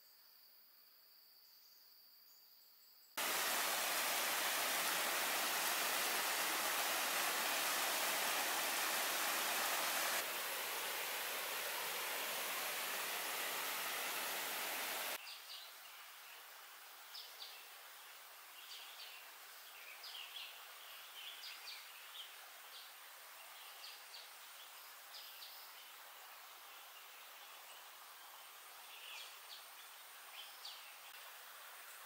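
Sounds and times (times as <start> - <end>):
birds chirping: 3.2 - 15.2
running water rushing: 3.2 - 15.2, 25.9 - 32.0.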